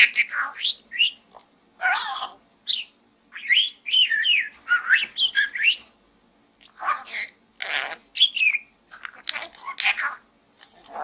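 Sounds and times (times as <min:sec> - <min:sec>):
harsh scratchy bird calls: 0:00.0 - 0:05.9, 0:06.6 - 0:11.0
budgerigar chirping: 0:01.8 - 0:05.8, 0:06.8 - 0:10.2.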